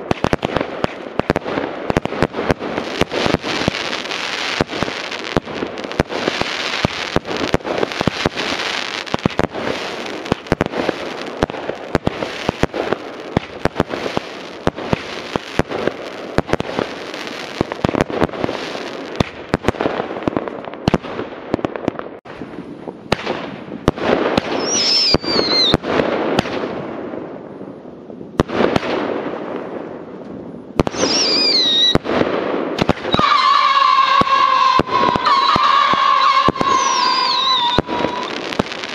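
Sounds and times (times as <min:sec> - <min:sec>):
firework bangs and crackling: 0:00.0 - 0:38.9
firework hiss: 0:00.1 - 0:19.2, 0:30.8 - 0:32.0, 0:32.8 - 0:38.9
descending firework whistle: 0:24.5 - 0:25.8, 0:30.9 - 0:32.0, 0:32.8 - 0:38.9
steady high whistle: 0:24.6 - 0:25.7, 0:31.0 - 0:32.0, 0:33.1 - 0:38.6.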